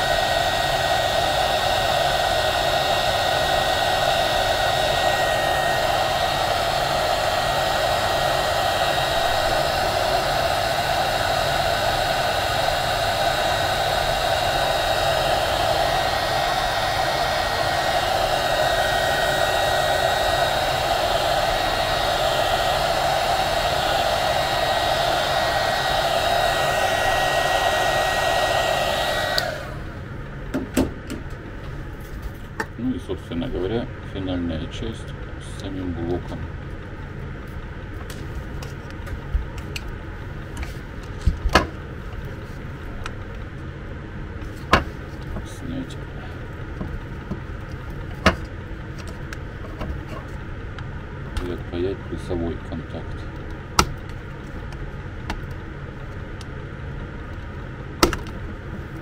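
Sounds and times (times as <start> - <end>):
heat gun blowing with a whine: 0.0 - 30.3.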